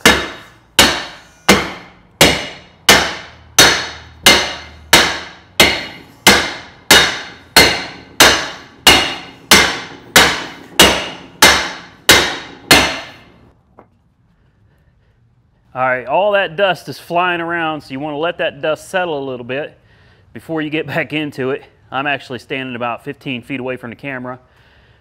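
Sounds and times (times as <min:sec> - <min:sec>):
hammer ringing on brake drum: 0:00.0 - 0:13.2.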